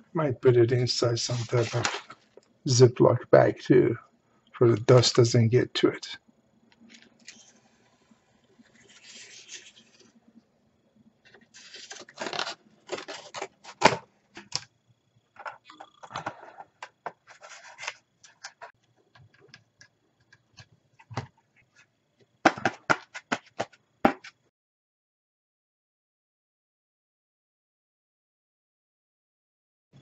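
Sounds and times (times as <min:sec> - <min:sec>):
rubbing and scraping: 0:00.9 - 0:02.2, 0:08.6 - 0:10.2, 0:11.3 - 0:14.6, 0:15.4 - 0:18.8.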